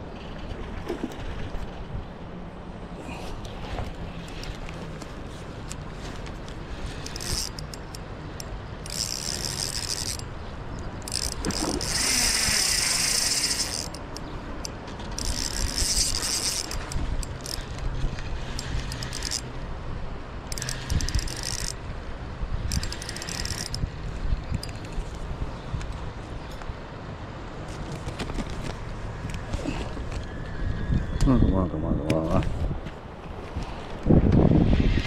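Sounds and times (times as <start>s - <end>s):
fishing reel whirring: 6.4s - 14.3s, 15.0s - 19.5s, 20.5s - 21.8s, 22.6s - 23.9s.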